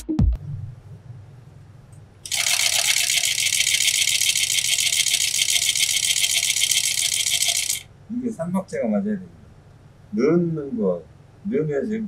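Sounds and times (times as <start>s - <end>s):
low machine hum: 0.4s - 12.0s
sewing machine needle rattling: 2.2s - 7.8s.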